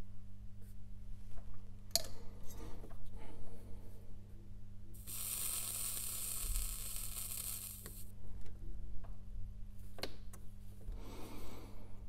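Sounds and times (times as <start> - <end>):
soldering iron tip sizzling: 5.0 - 8.1.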